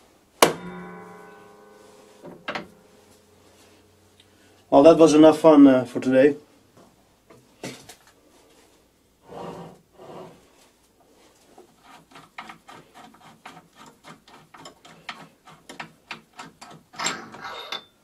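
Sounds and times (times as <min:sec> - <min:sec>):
soft rubbing on metal: 0:01.3 - 0:04.1, 0:08.3 - 0:15.7.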